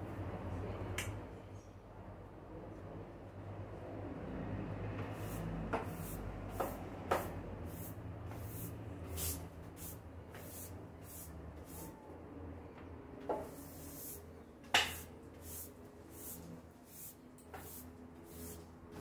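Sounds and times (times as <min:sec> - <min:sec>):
hose water spraying: 0:05.1 - 0:11.9, 0:13.5 - 0:14.2, 0:14.8 - 0:18.6.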